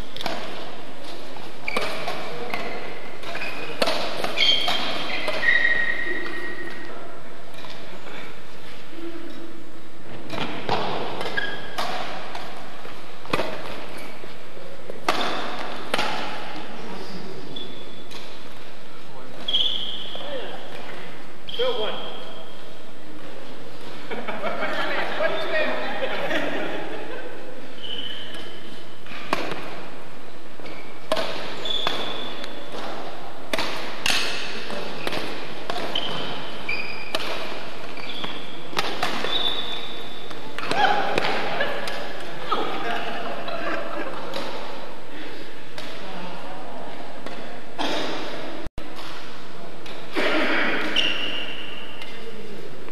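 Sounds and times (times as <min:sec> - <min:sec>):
badminton rackets hitting shuttlecock: 0:00.0 - 0:06.9, 0:10.3 - 0:14.3, 0:14.9 - 0:16.7, 0:27.8 - 0:29.9, 0:30.6 - 0:44.9
shoes squeaking on floor: 0:01.0 - 0:07.0, 0:10.3 - 0:13.0, 0:13.7 - 0:14.4, 0:16.5 - 0:18.5, 0:19.3 - 0:22.8, 0:27.7 - 0:29.3, 0:30.6 - 0:33.2, 0:34.0 - 0:41.3, 0:50.6 - 0:52.2.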